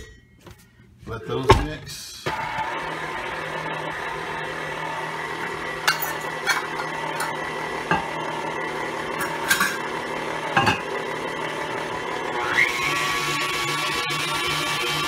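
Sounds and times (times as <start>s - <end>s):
electric stand mixer running: 2.3s - 15.0s.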